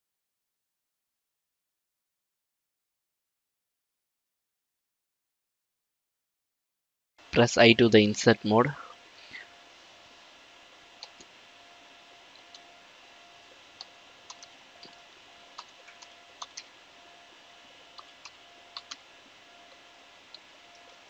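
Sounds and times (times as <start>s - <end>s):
typing on computer keyboard: 18.0s - 19.0s.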